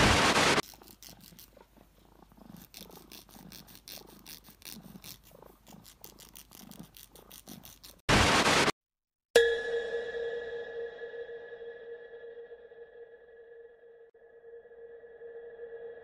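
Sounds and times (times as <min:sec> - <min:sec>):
tv static burst: 0:00.0 - 0:00.6, 0:08.1 - 0:08.7
nail file scratching: 0:00.0 - 0:08.6
cat purring: 0:00.6 - 0:08.0.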